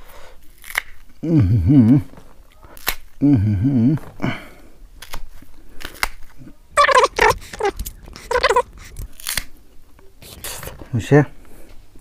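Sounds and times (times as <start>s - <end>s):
wavering pitched calls: 6.8s - 9.0s.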